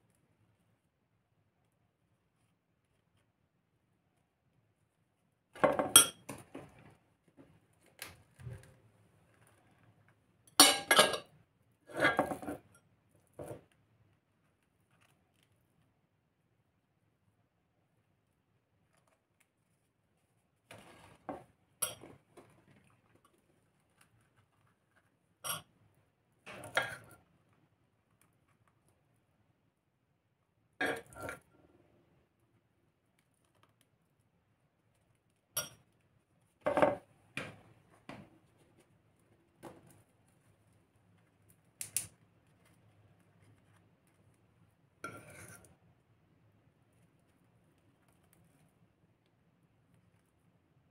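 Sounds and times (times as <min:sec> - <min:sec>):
spoon scraping cake: 0:41.8 - 0:45.9.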